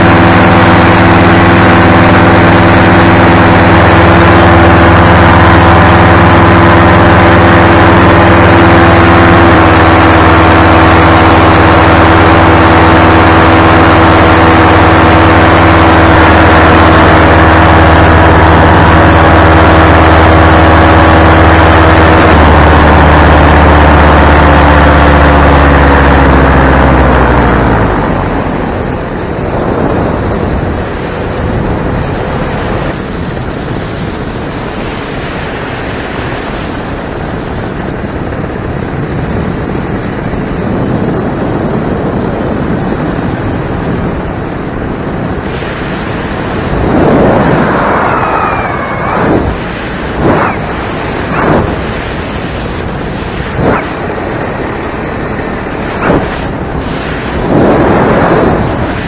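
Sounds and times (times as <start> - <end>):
paramotor engine and propeller: 0.0 - 59.0
wind rushing: 39.0 - 59.0.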